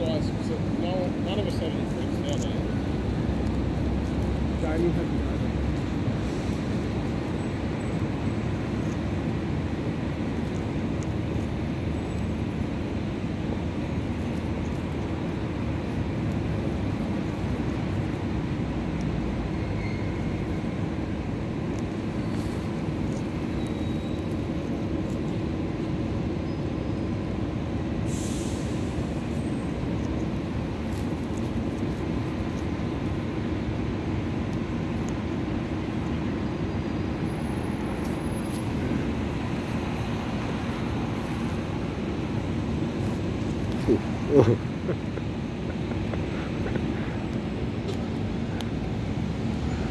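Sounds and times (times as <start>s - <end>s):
low outdoor rumble: 0.0s - 49.9s
brief high hiss: 28.1s - 28.9s.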